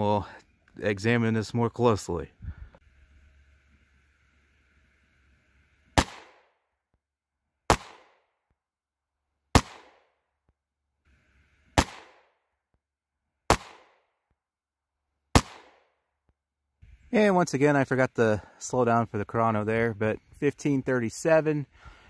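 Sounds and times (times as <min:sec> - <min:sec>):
rifle shots: 0:06.0 - 0:06.6, 0:07.7 - 0:08.2, 0:09.5 - 0:10.1, 0:11.8 - 0:12.4, 0:13.5 - 0:14.1, 0:15.3 - 0:15.9.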